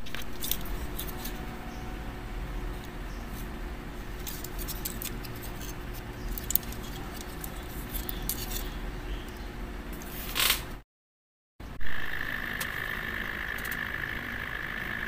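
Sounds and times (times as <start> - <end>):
plastic model parts clicking: 0.0 - 1.4, 4.2 - 8.8
low background hum: 0.0 - 10.8, 11.6 - 15.0.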